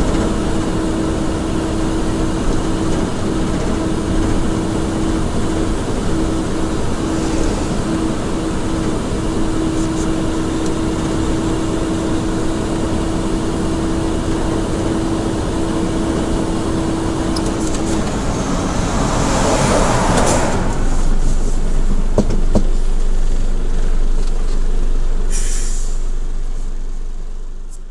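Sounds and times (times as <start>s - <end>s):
truck engine and road noise: 0.0s - 27.9s
steady whine: 1.7s - 25.3s
rush of passing noise: 6.5s - 9.2s, 17.0s - 22.4s
short hiss: 25.3s - 26.0s.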